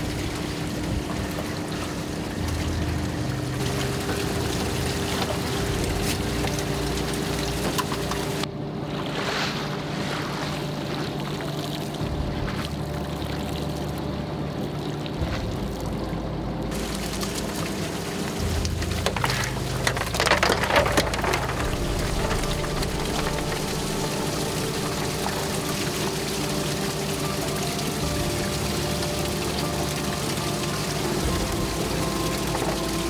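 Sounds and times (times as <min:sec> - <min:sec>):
boat engine and line hauler humming: 0:00.0 - 0:33.0
splashing and dripping water: 0:00.0 - 0:33.0.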